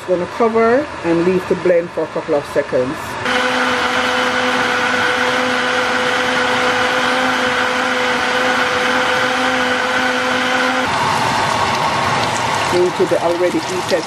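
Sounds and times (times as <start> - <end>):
blender motor whirring: 3.2 - 14.0.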